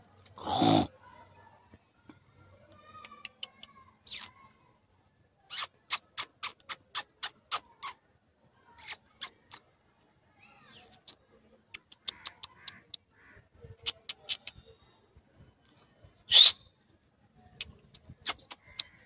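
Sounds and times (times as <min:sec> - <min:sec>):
sharp clicks or squeaks: 0:03.0 - 0:04.3.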